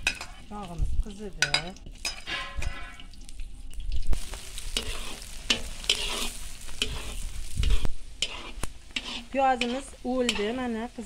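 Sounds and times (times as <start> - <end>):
onions sizzling in hot oil: 0.0 - 11.0
metal skimmer scraping pot: 1.4 - 3.8, 4.8 - 10.5.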